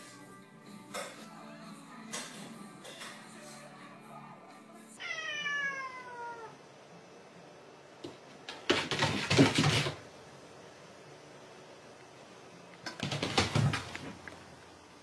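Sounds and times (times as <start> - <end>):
cat meowing: 5.0 - 6.6.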